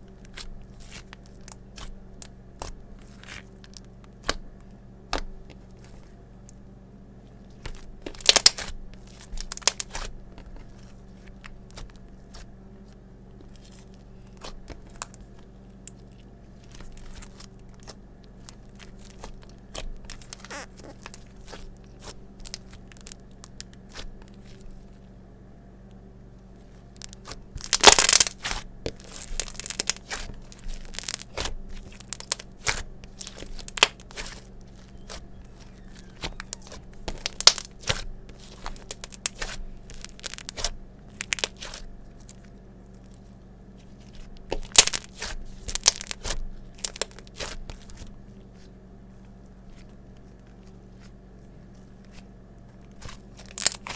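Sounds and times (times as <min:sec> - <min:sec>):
slime sticky clicks and crackles: 0:07.6 - 0:10.1, 0:16.6 - 0:24.0, 0:27.0 - 0:35.2, 0:36.0 - 0:43.2, 0:44.1 - 0:48.0, 0:52.9 - 0:53.9.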